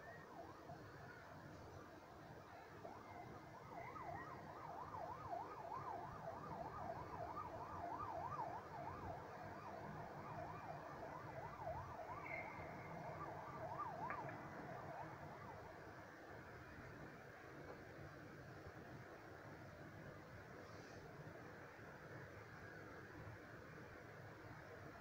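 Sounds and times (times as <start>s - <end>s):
low city hum: 0.0s - 25.0s
emergency siren yelping: 2.8s - 16.0s.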